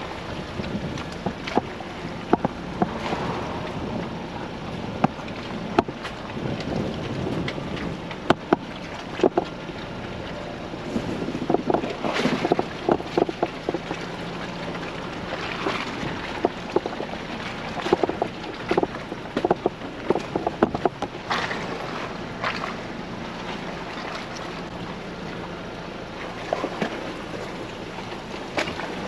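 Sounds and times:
wind noise: 0.0 - 9.6, 10.6 - 14.0, 15.5 - 21.4
truck knocking and clattering: 0.0 - 21.7
low engine hum: 0.0 - 29.0.

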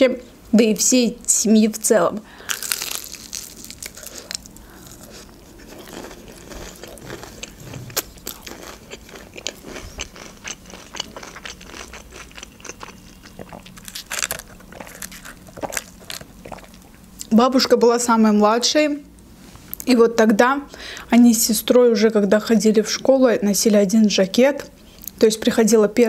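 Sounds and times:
crunchy chewing: 2.4 - 17.3.

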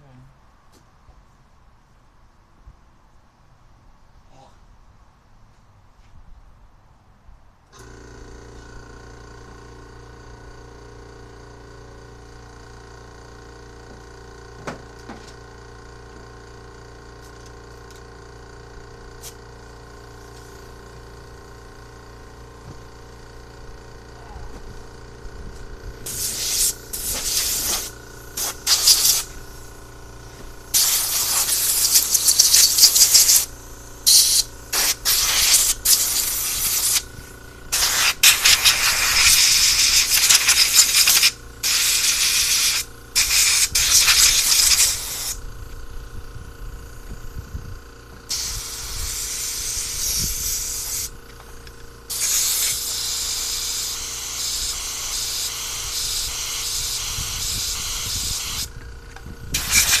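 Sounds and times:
compressed air hissing blasts: 26.0 - 45.5, 48.3 - 51.2, 52.1 - 58.8, 59.4 - 60.0.

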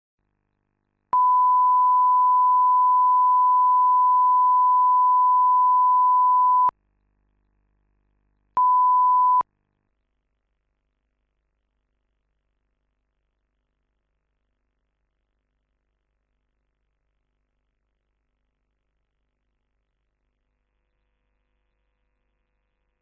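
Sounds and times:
test tone beep: 1.2 - 6.7, 8.6 - 9.4.

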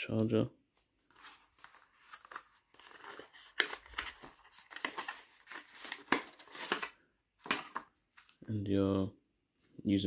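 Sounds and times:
packaging rustling: 1.0 - 8.4.

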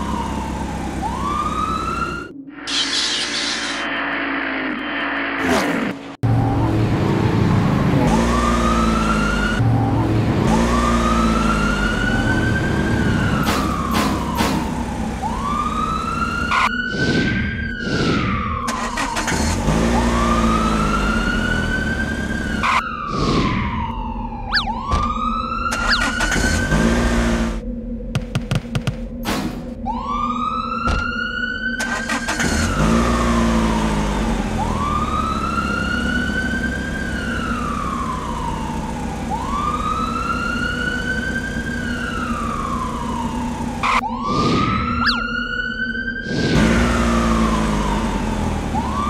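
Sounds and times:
cartoon siren wailing: 10.6 - 27.1, 29.8 - 49.0.

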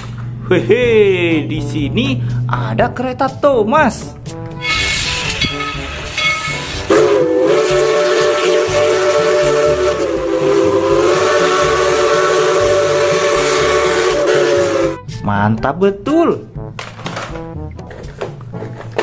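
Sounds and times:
steam whistle chord: 4.6 - 15.1.

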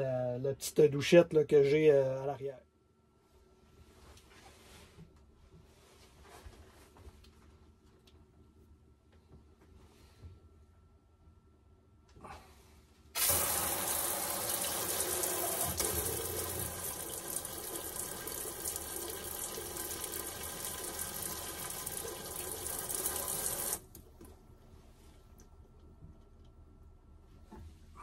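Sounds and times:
hand sprayer spraying water: 13.2 - 16.8.

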